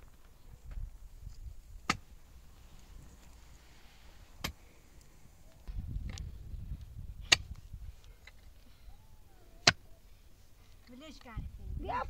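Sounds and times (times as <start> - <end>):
pickaxe striking stony soil: 1.8 - 2.1, 4.4 - 4.6, 7.2 - 7.6.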